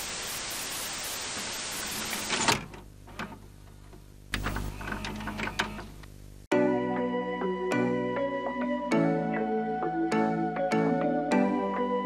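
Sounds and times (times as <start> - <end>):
static hiss: 0.0 - 6.5
mechanical clicks and clunks: 2.2 - 6.2.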